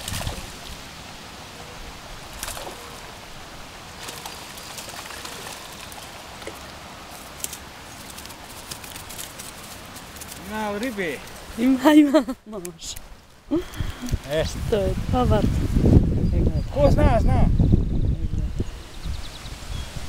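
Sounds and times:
light water splashing: 0:00.0 - 0:00.9, 0:02.1 - 0:11.8
rustles: 0:01.8 - 0:14.7.

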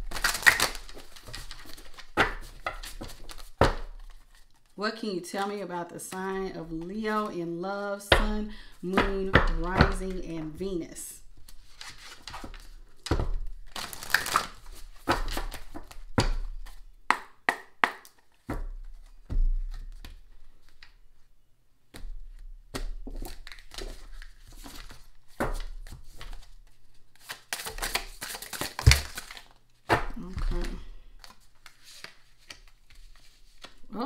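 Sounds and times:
cards being shuffled by hand: 0:00.0 - 0:04.8, 0:11.4 - 0:16.8, 0:21.9 - 0:34.0.

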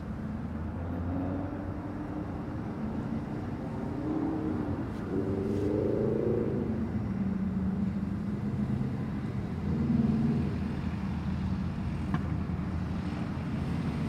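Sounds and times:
passing vehicles rumbling: 0:00.0 - 0:14.0
vehicle engine accelerating: 0:03.4 - 0:11.0.

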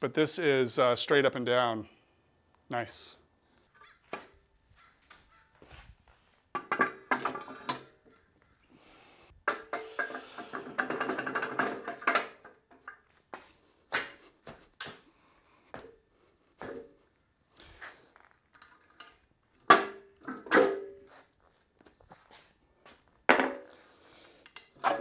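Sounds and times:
steel arm clanking and scraping: 0:06.6 - 0:08.0, 0:09.5 - 0:13.1, 0:24.6 - 0:25.0.

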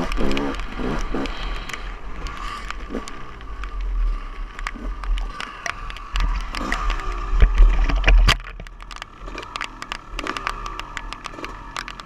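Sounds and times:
dirt bike engine idling: 0:00.0 - 0:12.0
raindrops ticking on camera: 0:00.0 - 0:12.0
heavy low rumble: 0:05.9 - 0:09.1.

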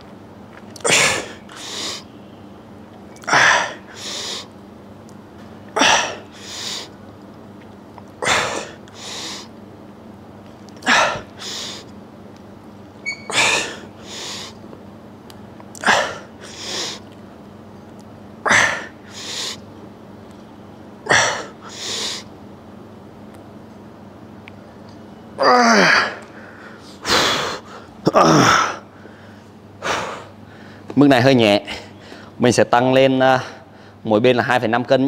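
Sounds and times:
man breathing hard: 0:01.1 - 0:02.1, 0:03.2 - 0:04.5, 0:05.8 - 0:07.0, 0:08.2 - 0:09.5, 0:10.8 - 0:11.9, 0:13.3 - 0:14.6, 0:15.8 - 0:17.1, 0:18.5 - 0:19.6, 0:21.1 - 0:22.3, 0:25.8 - 0:31.0, 0:31.7 - 0:32.4, 0:33.4 - 0:34.0.

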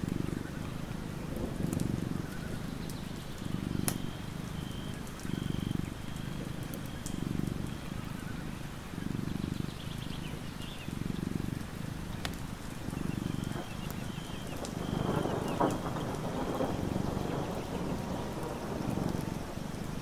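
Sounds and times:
cat purring: 0:00.0 - 0:20.0.

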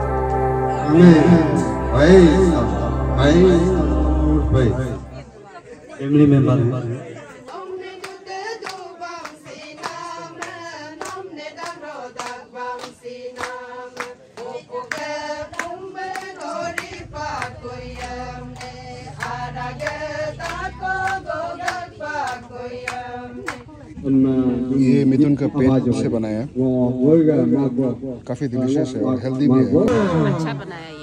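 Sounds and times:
group singing: 0:00.0 - 0:05.3, 0:07.0 - 0:23.7
hands clapping in rhythm: 0:07.4 - 0:23.7.

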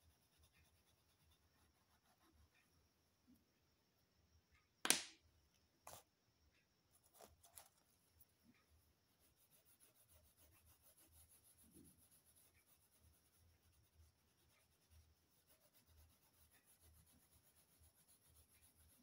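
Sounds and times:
crayon rubbing on paper: 0:09.2 - 0:19.0.

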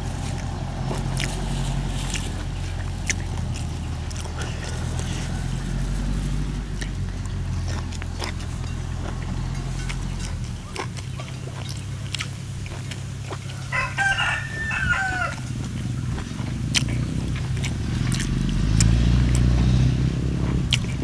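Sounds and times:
farm machine engine rumble: 0:00.0 - 0:21.0
rooster crowing: 0:04.3 - 0:06.5, 0:13.4 - 0:15.8.

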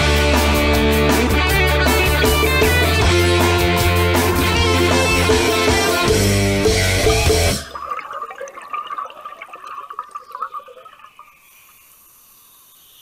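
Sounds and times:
underwater bubbles gurgling: 0:07.0 - 0:11.8
faint steady hiss: 0:08.5 - 0:13.0.

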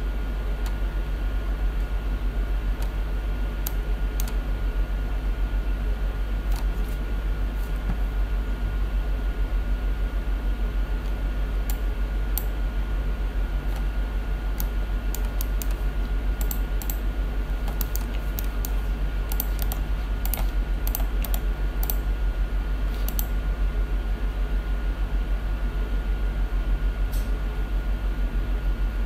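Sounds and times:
steady low hum: 0:00.0 - 0:29.0
keyboard keys tapping: 0:17.6 - 0:22.0.

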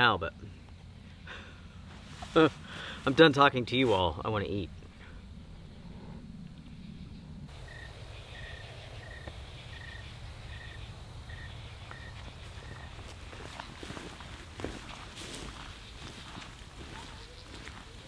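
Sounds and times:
cricket chirping: 0:00.0 - 0:18.0
low background rumble: 0:00.0 - 0:18.0
faint rustles: 0:00.5 - 0:07.5.

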